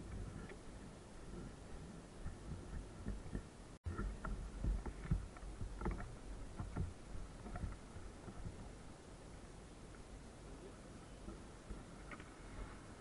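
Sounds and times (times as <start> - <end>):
dull low thumps of steps: 0.0 - 8.9
clothing rustling on microphone: 11.2 - 13.0.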